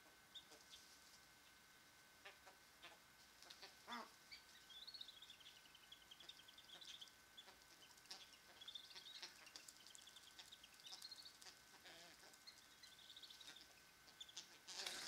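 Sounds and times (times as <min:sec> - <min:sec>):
ducklings peeping: 0:00.0 - 0:15.0
lower duck calls: 0:02.2 - 0:04.2.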